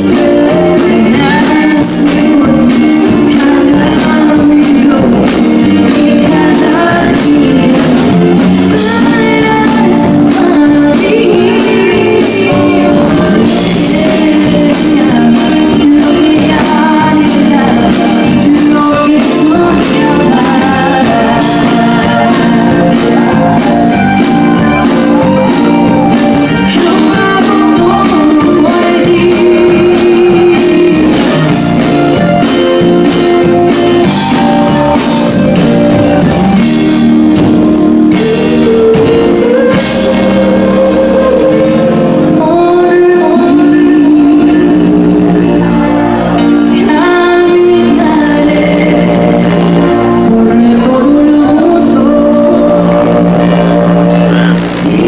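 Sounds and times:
steady drum beat: 0.0s - 42.8s
electric guitars: 0.0s - 55.0s
live band through pa: 0.0s - 55.0s
person singing: 0.0s - 55.0s.

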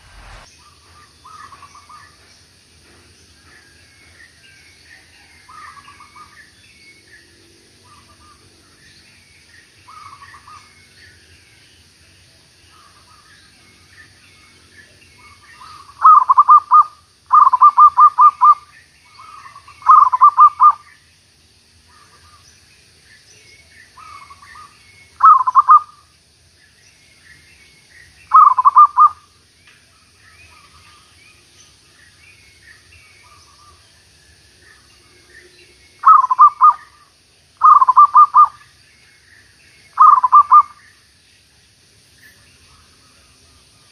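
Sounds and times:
small birds chirping faintly: 0.0s - 43.9s
dove cooing: 16.0s - 18.6s, 19.9s - 20.8s, 25.2s - 25.9s, 28.3s - 29.2s, 36.0s - 36.9s, 37.6s - 38.6s, 40.0s - 40.7s.

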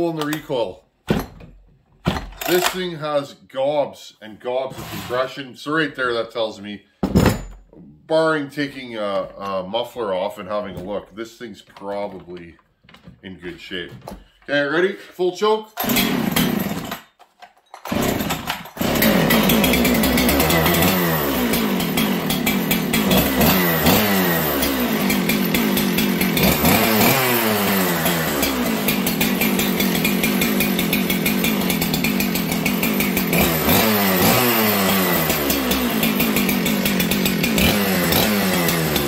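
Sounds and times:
chainsaw revving: 4.7s - 5.3s, 15.8s - 17.0s, 17.9s - 39.0s.

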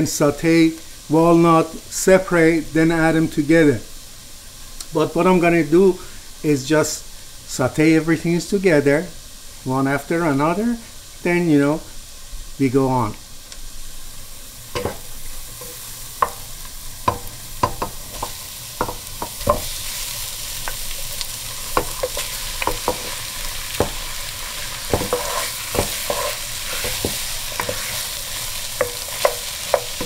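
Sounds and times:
onion and chicken sizzling: 0.0s - 30.0s
wooden spoon knocking pot: 17.1s - 19.7s.

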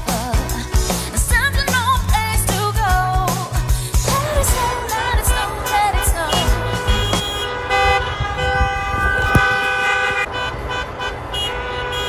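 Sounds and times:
car horns honking: 4.2s - 12.0s.

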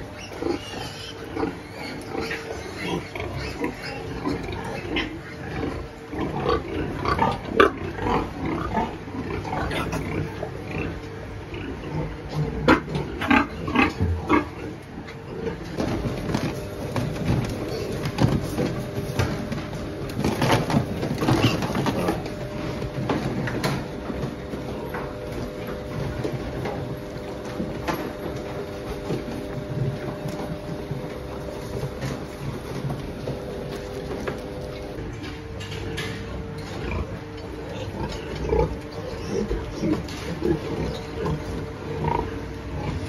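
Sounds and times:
piglets grunting: 0.0s - 23.0s, 35.9s - 43.0s.

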